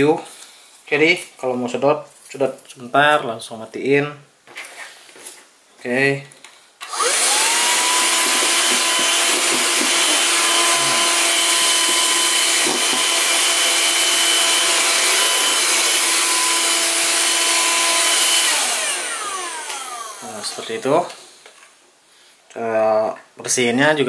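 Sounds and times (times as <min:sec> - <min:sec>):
handheld vacuum cleaner whining: 0:06.8 - 0:21.2.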